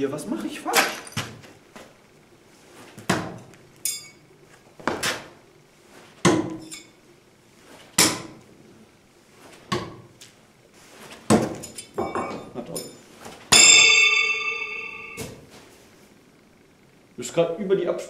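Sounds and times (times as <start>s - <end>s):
brief metallic ringing: 13.5s - 15.4s.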